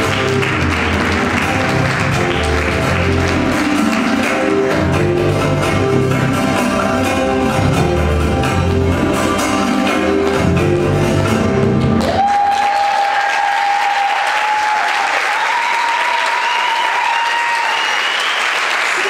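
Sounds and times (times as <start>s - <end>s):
audience applause: 0.0s - 4.8s, 12.0s - 19.0s
guitar-led music: 0.0s - 12.0s
high-pitched cheer: 12.0s - 19.0s.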